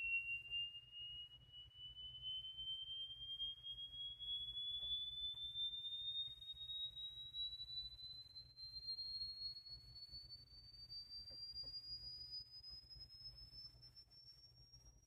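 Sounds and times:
sine tone sweeping upward: 0.0s - 15.0s.

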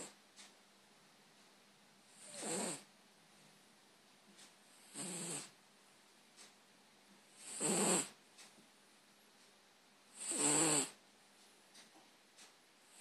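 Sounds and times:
cat snoring: 2.1s - 2.9s, 4.8s - 5.6s, 7.4s - 8.2s, 10.1s - 11.0s.

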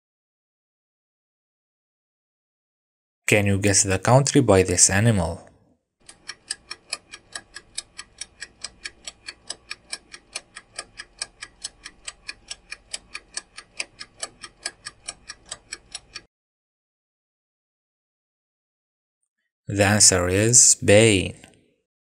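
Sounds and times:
clock ticking fast: 6.0s - 16.3s.

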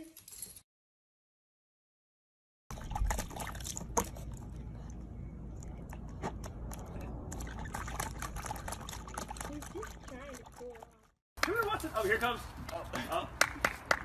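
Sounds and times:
water splashing in a tub: 2.7s - 4.6s, 6.4s - 11.6s
steady low rumble: 2.7s - 9.2s.

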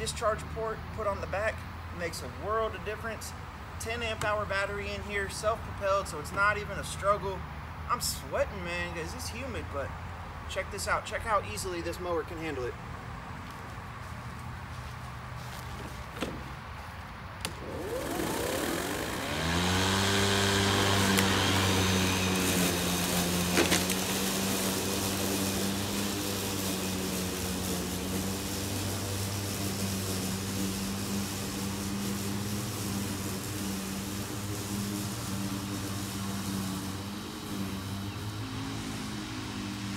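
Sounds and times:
lawn mower motor whining: 15.5s - 39.9s.

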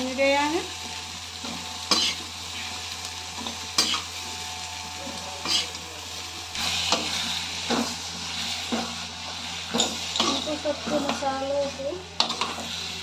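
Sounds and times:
spices sizzling in a pan: 0.0s - 13.0s
metal spoon scraping a pan: 1.4s - 4.3s, 5.4s - 5.8s, 6.6s - 13.0s.

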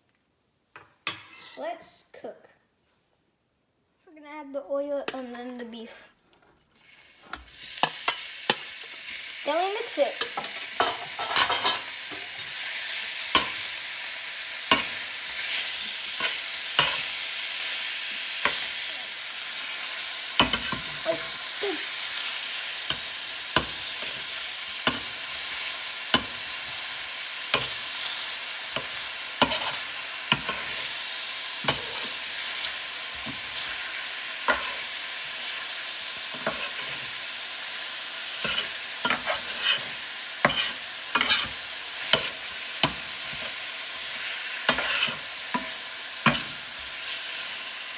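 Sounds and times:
metal spatula scraping a pan: 1.1s - 1.7s, 14.7s - 17.8s, 19.6s - 21.5s, 22.1s - 35.0s, 36.3s - 37.2s, 38.3s - 47.5s
meat sizzling in hot oil: 6.7s - 47.9s.

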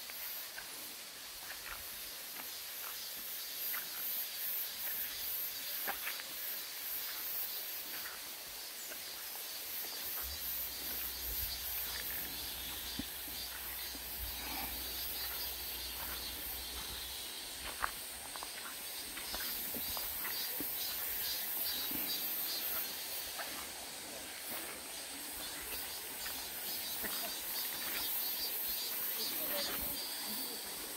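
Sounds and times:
insects buzzing: 0.0s - 30.9s
footsteps on dirt trail: 7.0s - 30.9s.

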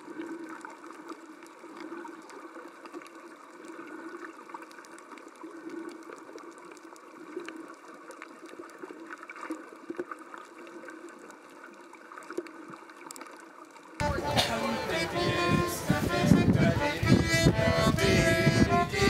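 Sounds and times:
underwater clicks and crackles: 0.0s - 14.0s.

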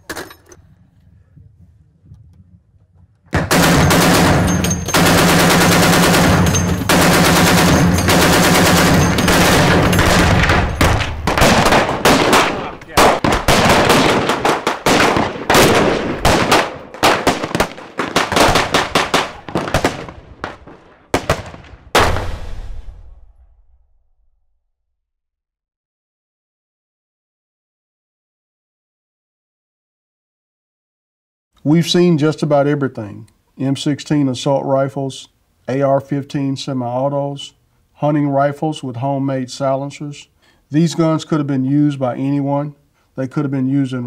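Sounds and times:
heavy machine gun bursts: 3.3s - 20.1s.

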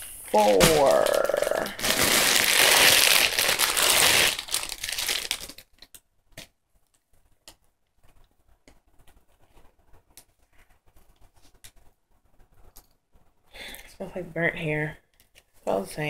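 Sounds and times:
plastic bag crinkling: 0.3s - 6.0s.

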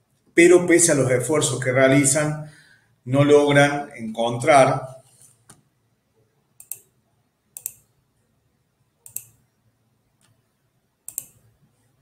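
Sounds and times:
computer mouse button clicks: 7.6s - 7.8s, 9.0s - 9.4s, 11.1s - 11.5s.

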